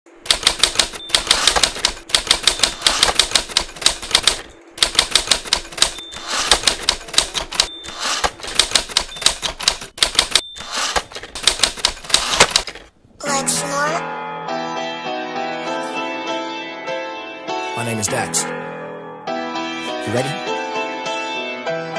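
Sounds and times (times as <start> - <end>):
typewriter key clicks: 0.2 - 12.9.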